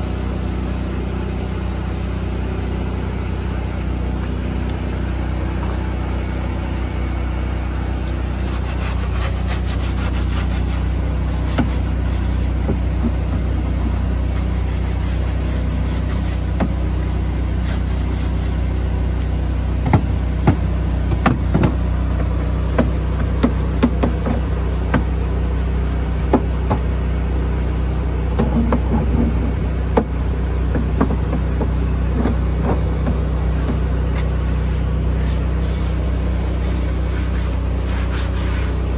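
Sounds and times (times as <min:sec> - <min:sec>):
engine humming: 0:00.0 - 0:38.9
brush scrubbing plastic bins: 0:08.1 - 0:18.9, 0:19.9 - 0:27.3, 0:28.3 - 0:38.9.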